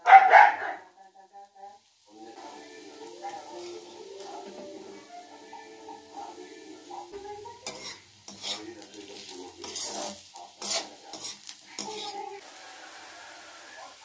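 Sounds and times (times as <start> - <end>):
oil sizzling: 0.0 - 14.0
metal spoon scraping pan: 6.8 - 12.4.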